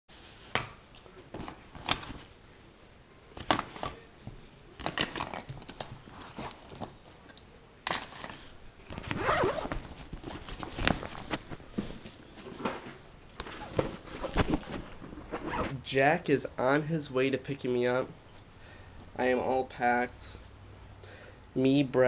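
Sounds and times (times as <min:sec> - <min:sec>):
fabric and nylon rustling: 0:03.4 - 0:07.2, 0:08.0 - 0:15.8.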